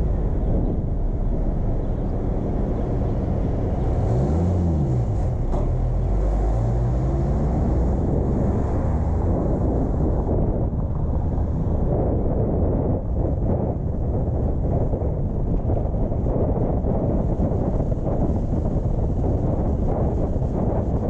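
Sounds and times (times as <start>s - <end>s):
engine tone rising and falling: 0.0s - 12.9s
road and wind rumble: 0.0s - 21.0s.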